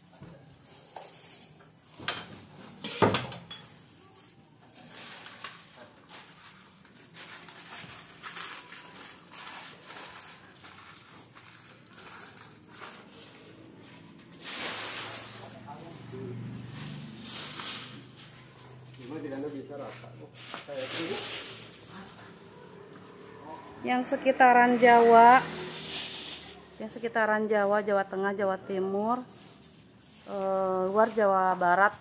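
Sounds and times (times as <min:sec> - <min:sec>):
rustling and scuffing: 0:04.8 - 0:23.2.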